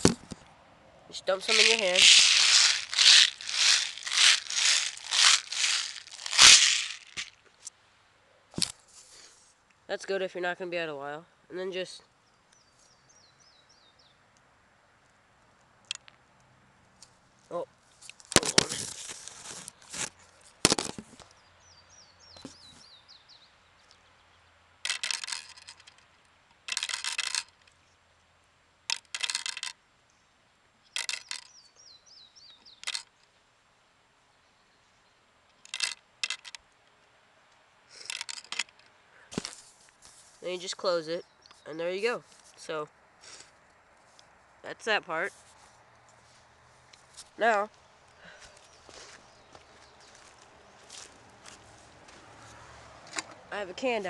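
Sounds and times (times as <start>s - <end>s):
steel balls rattling in container: 1.4s - 7.3s, 24.9s - 26.0s, 26.7s - 27.6s.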